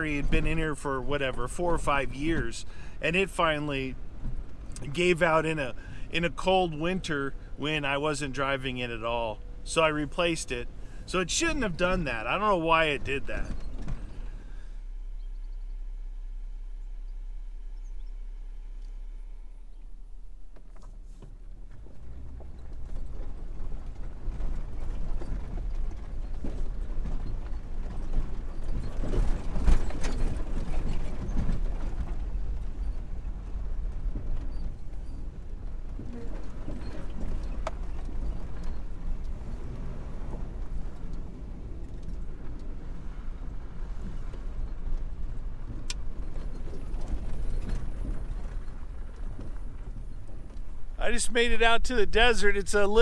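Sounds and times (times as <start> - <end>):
low rumble of engine and tyres: 0.0 - 53.0
car body knocks and creaks: 13.3 - 14.4.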